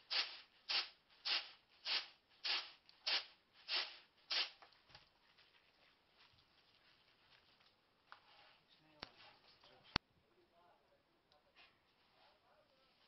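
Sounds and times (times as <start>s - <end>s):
grain swishing in winnowing basket: 0.0s - 4.6s
faint rustling of basket: 3.5s - 9.9s.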